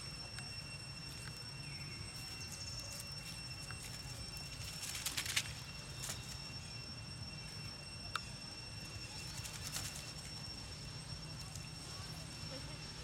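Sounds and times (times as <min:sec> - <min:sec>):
dry leaves crackling underfoot: 0:00.0 - 0:06.7, 0:09.0 - 0:10.5.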